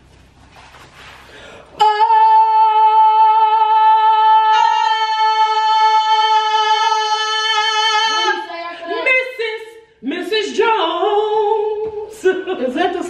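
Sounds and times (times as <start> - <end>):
person singing a long note: 1.8 - 9.1.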